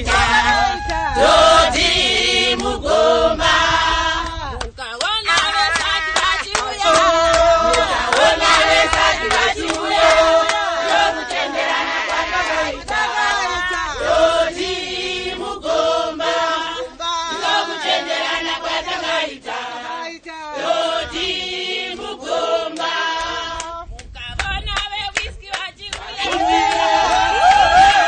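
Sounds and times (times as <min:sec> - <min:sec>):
choir singing: 0:00.0 - 0:04.6, 0:05.3 - 0:23.8
hand claps: 0:04.2 - 0:10.6, 0:12.8 - 0:13.1, 0:22.7 - 0:26.9.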